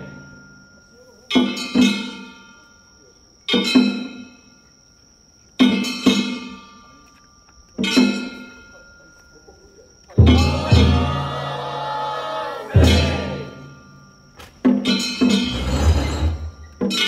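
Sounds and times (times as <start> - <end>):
drum and gong strokes: 10.2 - 11.4.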